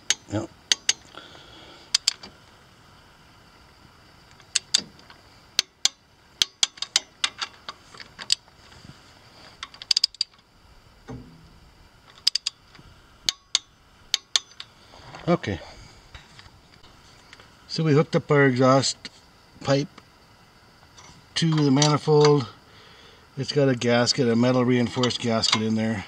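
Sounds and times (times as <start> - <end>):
ratchet wrench clicking: 0.0 - 1.1, 1.9 - 2.3, 4.3 - 4.8, 5.6 - 8.4, 9.6 - 10.4, 12.1 - 14.8.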